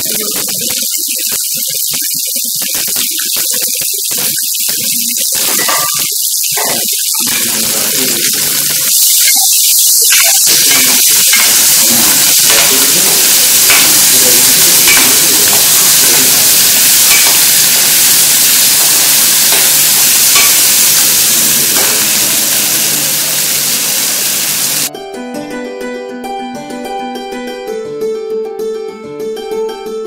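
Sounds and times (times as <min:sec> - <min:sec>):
onions sizzling in a pan: 0:00.0 - 0:24.9
ladle scraping and clinking on pan: 0:05.5 - 0:06.9.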